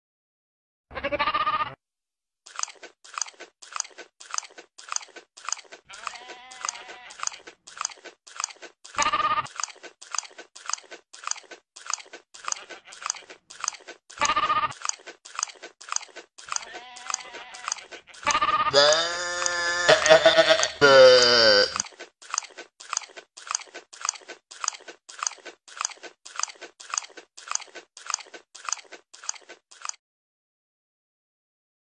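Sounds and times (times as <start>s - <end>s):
goat bleating: 0.9s - 1.8s, 5.9s - 7.5s, 9.0s - 9.5s, 12.4s - 13.4s, 14.2s - 14.8s, 16.5s - 21.8s
goat chewing with crunching: 2.5s - 30.0s.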